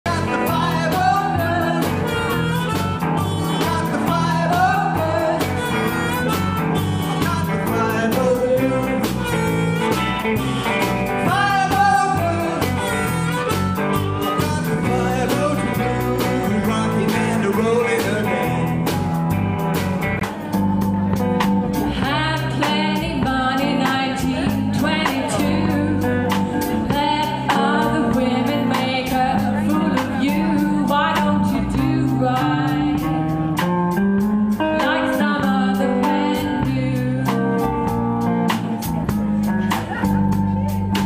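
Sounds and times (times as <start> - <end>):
bass guitar: 0.0 - 41.0
drums steady beat: 0.0 - 41.0
electric guitar: 0.0 - 41.0
harmonica bending notes: 0.1 - 30.9.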